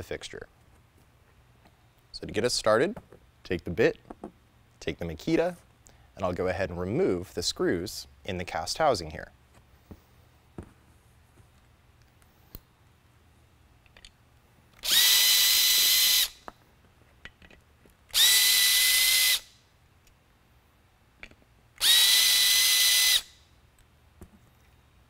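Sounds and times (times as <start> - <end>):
power drill whining: 14.8 - 16.4, 18.1 - 19.5, 21.8 - 23.3.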